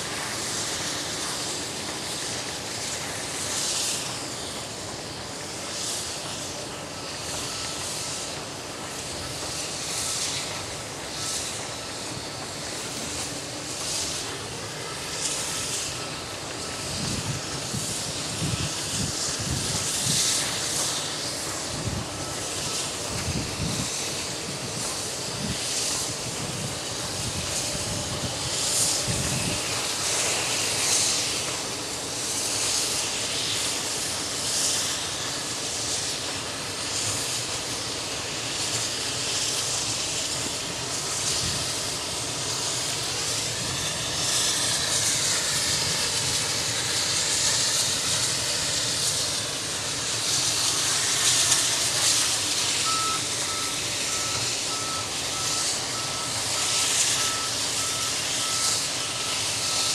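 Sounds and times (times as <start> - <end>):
steam locomotive chuffing: 0.0 - 59.9
electronic beep: 52.9 - 59.9.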